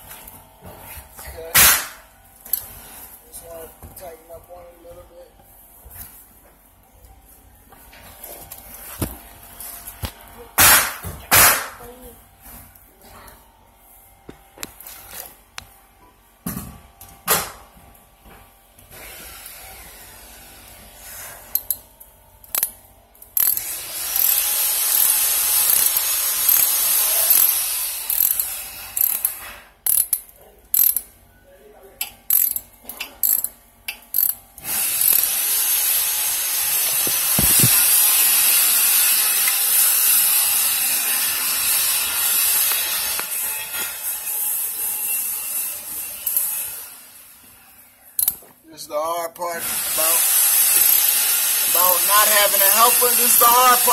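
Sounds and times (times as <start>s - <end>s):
ratchet wrench clicking: 21.5s - 21.8s, 22.4s - 31.1s, 32.0s - 35.5s, 48.2s - 48.4s, 50.0s - 53.9s.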